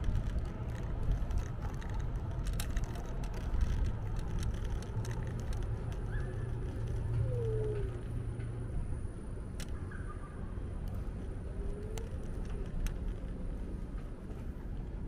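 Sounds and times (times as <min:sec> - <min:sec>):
scooter wheels rumbling: 0:00.0 - 0:09.8, 0:10.7 - 0:15.0.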